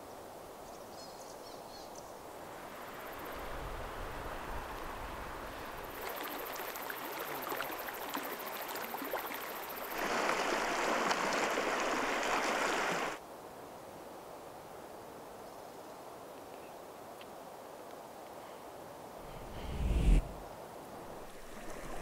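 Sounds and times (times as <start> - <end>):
faint steady hiss: 0.0 - 22.0
shallow stream water rushing: 6.0 - 13.2, 21.1 - 22.0.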